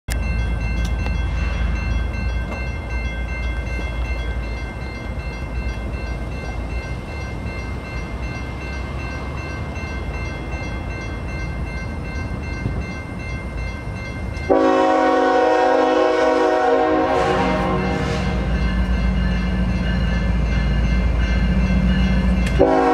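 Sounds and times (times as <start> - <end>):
diesel locomotives rumbling: 0.1 - 22.9
level-crossing warning bell: 0.1 - 22.9
locomotive air horn: 14.5 - 18.5, 22.6 - 22.9.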